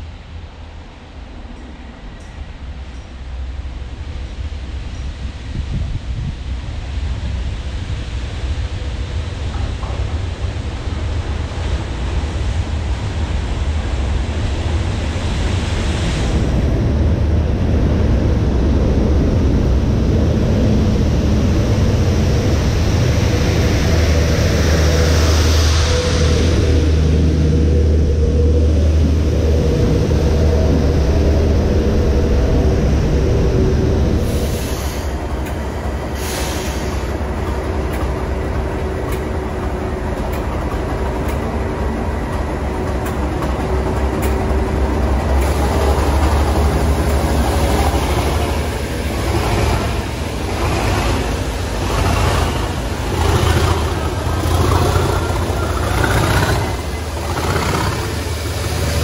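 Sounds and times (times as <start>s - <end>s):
diesel locomotive engine throb: 0.0s - 59.0s.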